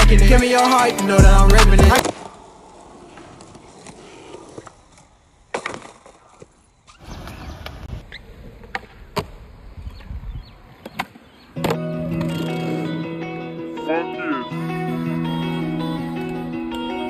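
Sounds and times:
music: 0.0 - 2.0, 11.6 - 17.0
skateboard wheels rolling on concrete: 0.0 - 17.0.

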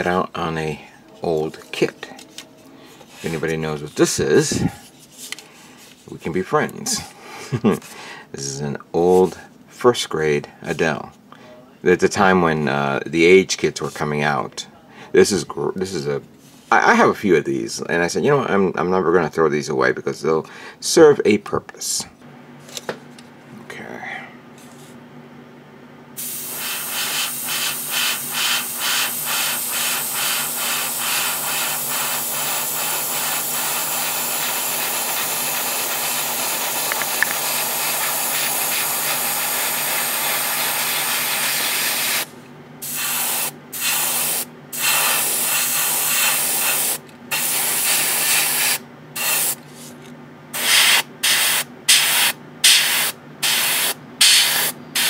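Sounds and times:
airbrush spraying hiss: 26.2 - 49.6, 50.6 - 55.0.

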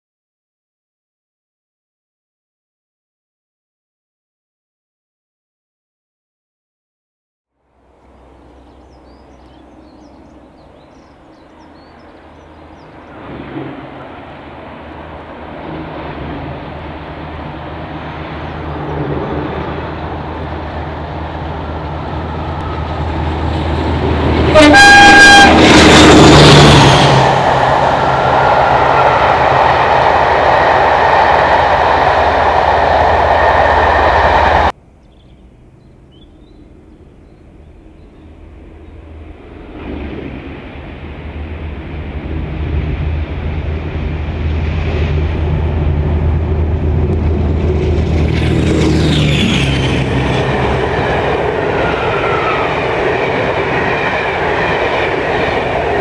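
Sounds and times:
diesel locomotive engine: 7.6 - 56.0
train horn blast: 22.6 - 27.2.

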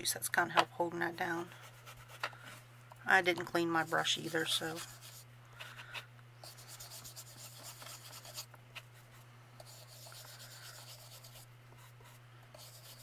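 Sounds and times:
low electrical hum: 0.0 - 13.0
brush scratching on paper: 3.7 - 5.3, 6.4 - 13.0.

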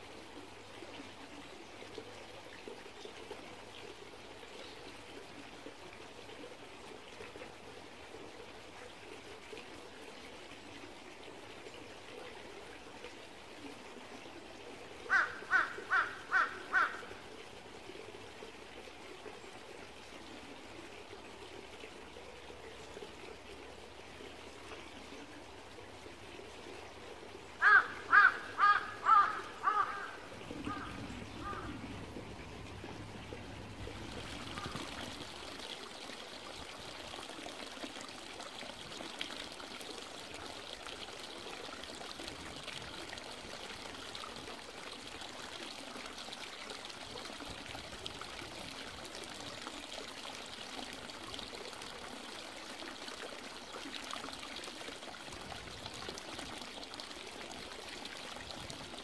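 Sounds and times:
stream trickling: 0.0 - 59.0
crow cawing: 15.1 - 17.1, 27.6 - 31.8.

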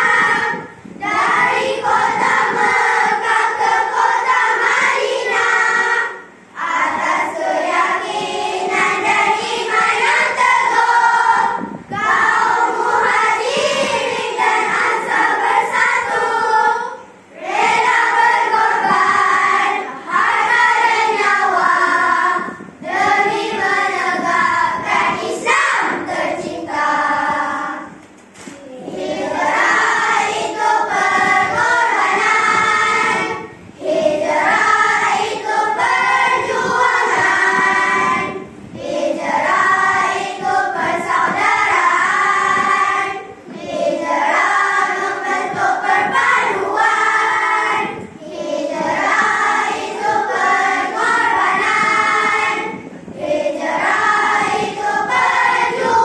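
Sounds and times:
children singing together: 0.0 - 28.0, 28.6 - 56.0.

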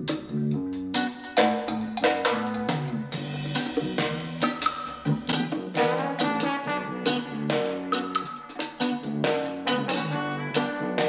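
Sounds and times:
song with drum kit on small speaker: 0.0 - 11.0.

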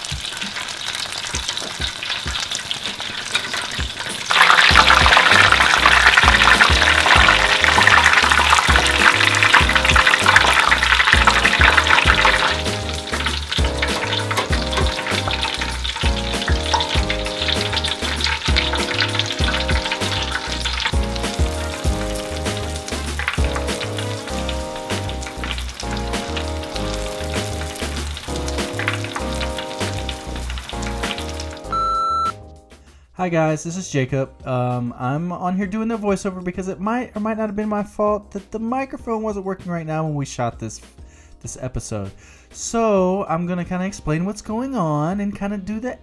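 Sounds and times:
shrimp sizzling in hot oil: 0.0 - 32.3
background music with bass line: 4.7 - 33.0.

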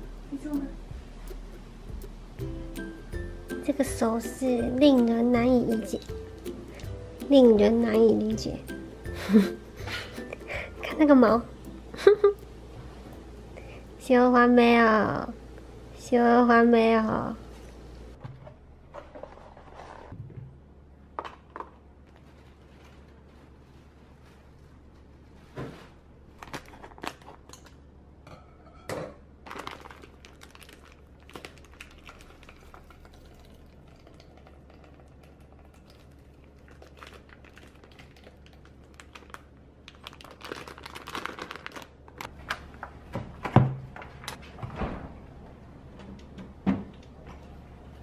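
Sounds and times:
low steady hum: 0.0 - 48.0
clicks and rustles of vegetables: 21.2 - 27.8, 29.4 - 43.0.

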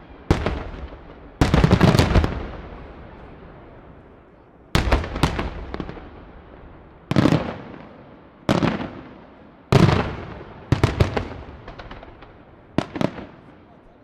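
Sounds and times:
firework shells booming: 4.8 - 13.6.

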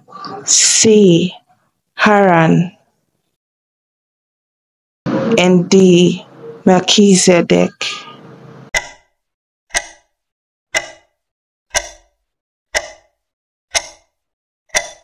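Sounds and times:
countdown timer ticks: 8.7 - 15.0.

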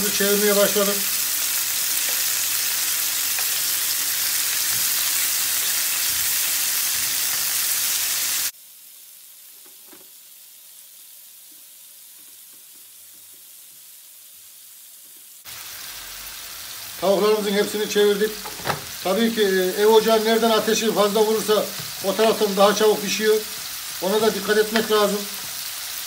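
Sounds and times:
chicken sizzling in a frying pan: 0.0 - 26.0.

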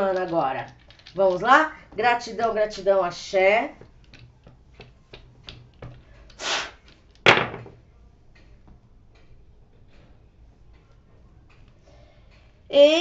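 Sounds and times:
dice clattering on table: 0.0 - 1.7, 6.8 - 7.8
dice clicking in hands: 0.0 - 1.7, 3.8 - 7.7
short hiss: 6.4 - 6.8.

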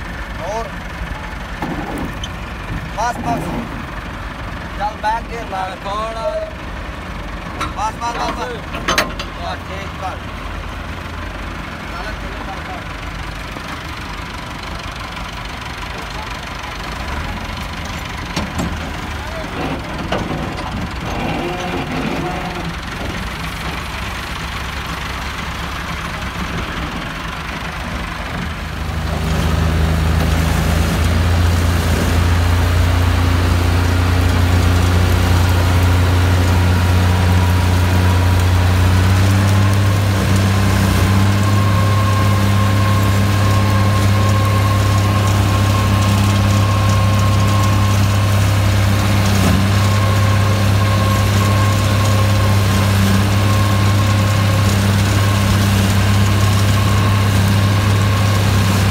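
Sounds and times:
tractor diesel engine under load: 0.0 - 58.9
forage harvester chopping: 29.1 - 58.9.

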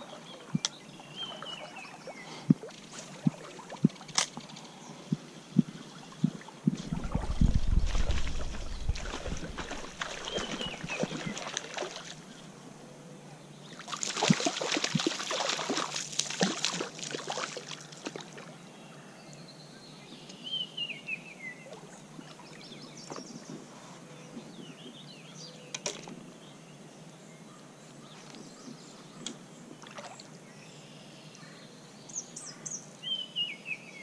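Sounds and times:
water splashing and sloshing: 0.0 - 12.5, 13.7 - 18.6, 29.7 - 30.4
songbird chirping: 0.0 - 34.0.

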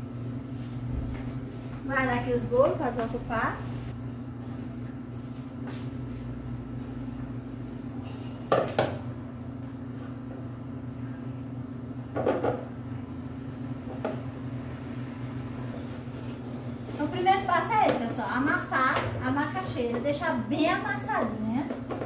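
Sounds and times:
steady low hum: 0.0 - 22.0
kitchen knocks and clatters: 12.1 - 12.7.

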